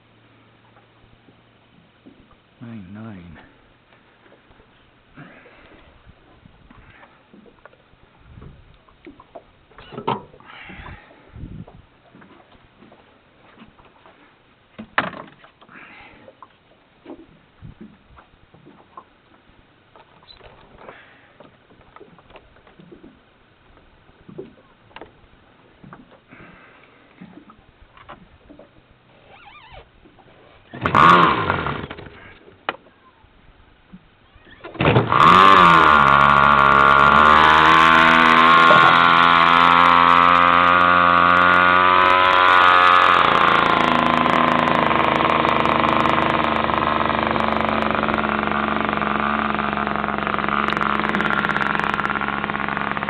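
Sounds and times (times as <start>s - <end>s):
electric starter cranking: 30.8s - 32.3s, 34.7s - 53.0s
model airplane engine running: 30.8s - 32.4s, 34.8s - 53.0s.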